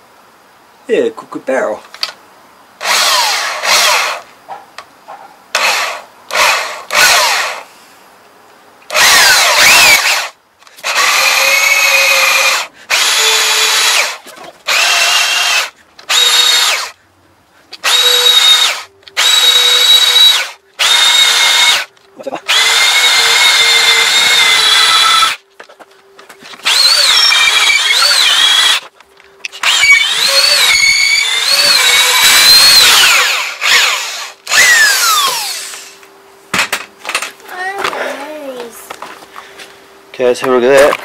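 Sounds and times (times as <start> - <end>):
power drill boring into wood: 2.8 - 4.2, 5.6 - 7.7, 8.9 - 17.0, 17.8 - 21.9, 22.5 - 25.4, 26.6 - 28.9, 29.6 - 35.9.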